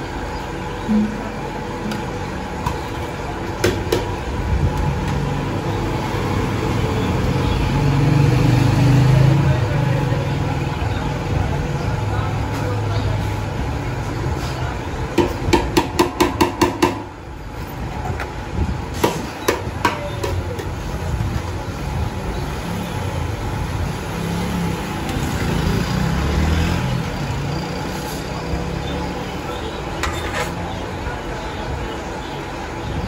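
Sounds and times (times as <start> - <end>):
steady background din: 0.0 - 7.9.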